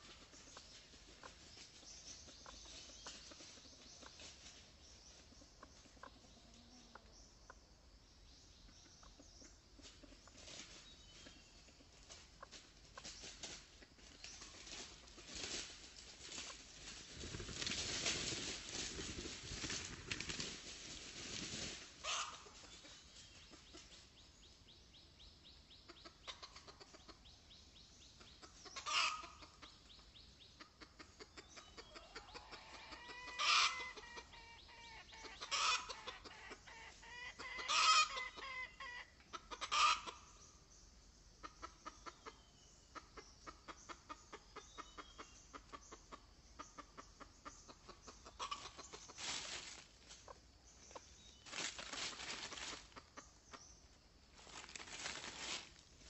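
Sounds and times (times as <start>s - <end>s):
dry leaves rustling: 12.1s - 22.9s, 48.4s - 50.3s, 51.2s - 53.2s, 54.2s - 56.0s
junglefowl clucking: 21.3s - 24.0s, 25.8s - 27.3s, 28.2s - 40.4s, 41.4s - 56.0s.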